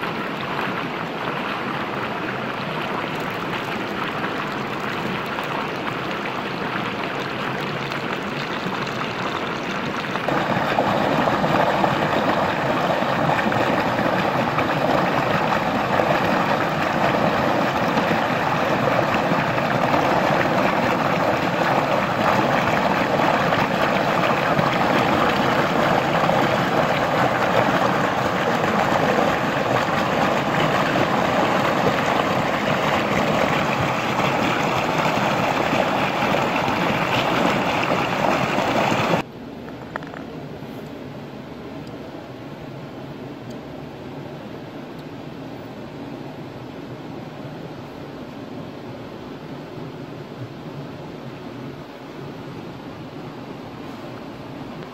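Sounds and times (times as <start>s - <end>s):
stream rushing over rocks: 0.0s - 39.3s.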